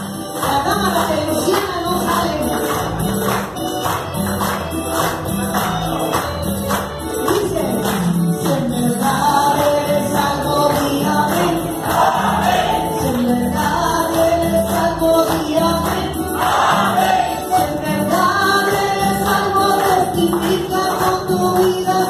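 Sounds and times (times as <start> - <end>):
hand-clapping: 0.0 - 22.0
woman singing into microphone: 0.4 - 2.7, 7.2 - 11.9, 12.7 - 16.4, 17.3 - 22.0
voices singing along: 9.1 - 21.1.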